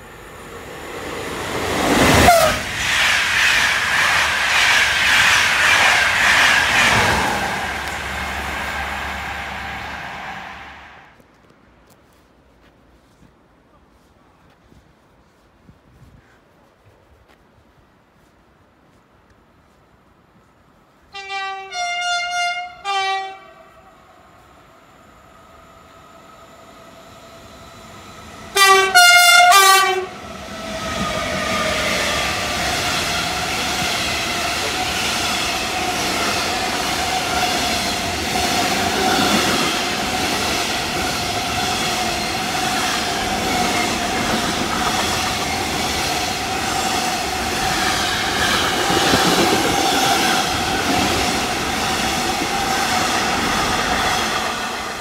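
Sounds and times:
train wheels rolling on rails: 0.0s - 11.5s, 24.2s - 55.0s
train horn blasts: 2.2s - 2.6s, 21.1s - 23.9s, 28.5s - 30.2s.

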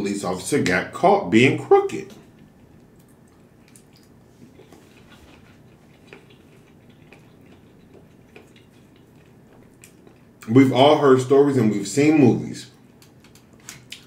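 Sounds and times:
chewing noodles: 2.2s - 10.5s, 12.8s - 14.0s.

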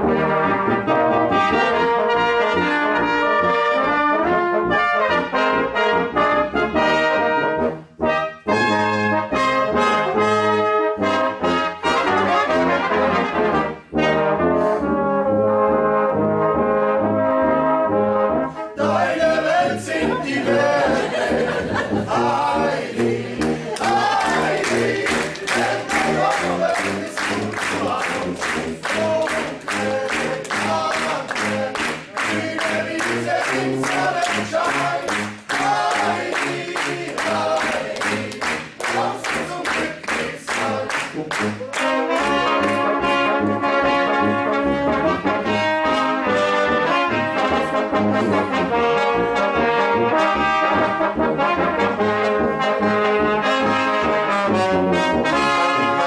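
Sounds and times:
brass ensemble playing a polka: 0.0s - 56.0s
tuba oom-pah bass: 0.0s - 56.0s
voices singing: 18.8s - 42.6s
handclaps: 23.0s - 42.9s.

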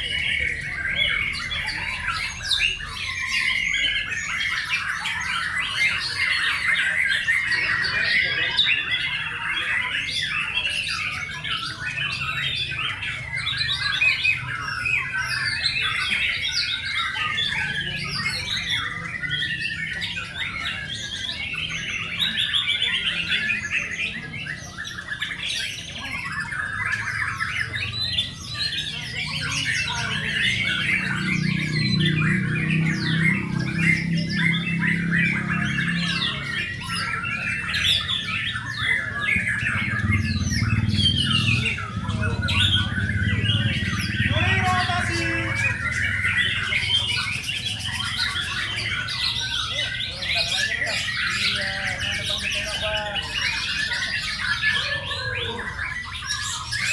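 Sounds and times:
many songbirds singing: 0.0s - 56.9s.

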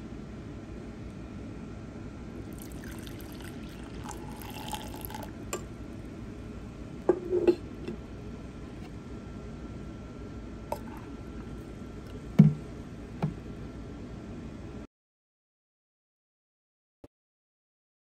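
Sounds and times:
coffee pouring into a mug: 2.4s - 5.7s, 10.7s - 11.1s
knocking clatter on a table: 12.4s - 12.6s.

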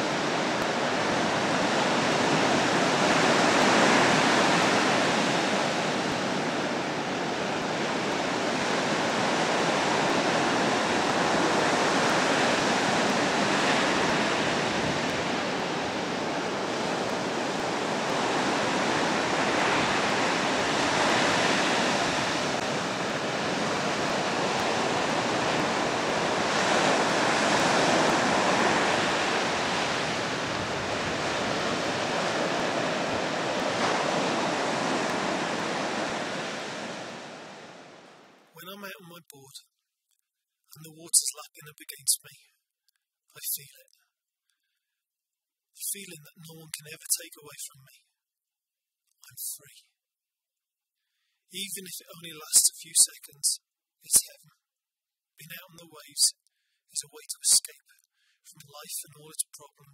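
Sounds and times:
ocean waves breaking: 0.0s - 38.4s.

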